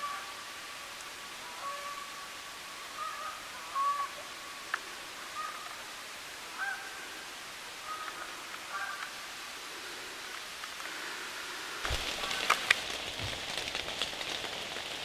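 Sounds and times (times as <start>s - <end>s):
steady hiss: 0.0s - 15.0s
bird calling: 2.9s - 4.4s, 5.2s - 5.9s, 6.5s - 9.2s.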